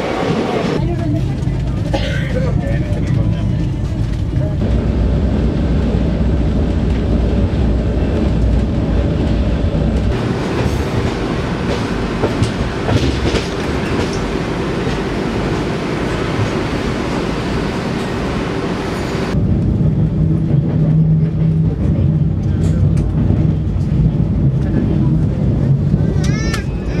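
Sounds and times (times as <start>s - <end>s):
train rumbling inside carriage: 0.0s - 27.0s
wheels clacking on rails: 0.0s - 27.0s.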